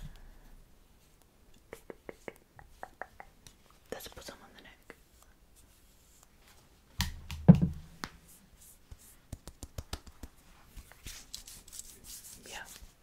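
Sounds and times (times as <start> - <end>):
rubbing of skin: 0.8 - 3.9, 4.9 - 6.6, 8.0 - 13.0
knock: 7.5 - 7.8.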